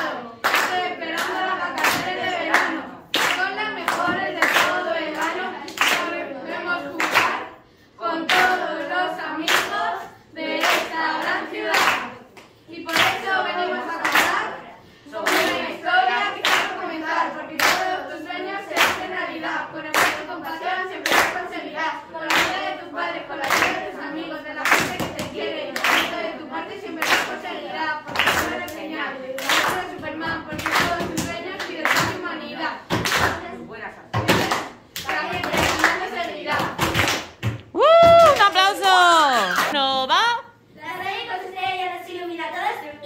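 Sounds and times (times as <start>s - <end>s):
children chanting a rap: 0.0s - 37.3s
children clapping: 0.4s - 6.1s, 7.0s - 7.4s, 11.7s - 13.2s, 19.9s - 20.2s, 21.0s - 21.4s, 23.4s - 23.8s, 24.6s - 26.3s, 27.0s - 27.4s, 28.1s - 28.8s, 29.4s - 32.2s, 32.9s - 33.5s, 34.2s - 39.9s.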